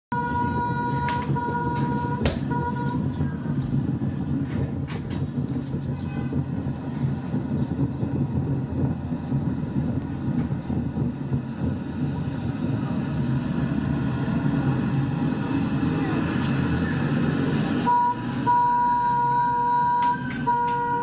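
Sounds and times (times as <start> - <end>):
car horn: 0.1 - 3.0, 17.9 - 21.0
car engine rumble: 0.1 - 21.0
road noise: 0.1 - 21.0.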